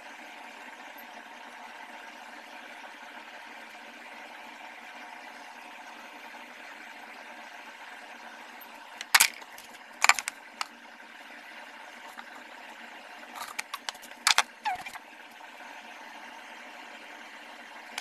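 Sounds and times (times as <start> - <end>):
sharp clicks and light rattles: 9.0 - 10.7, 13.4 - 15.0
short falling squeak: 14.4 - 15.0.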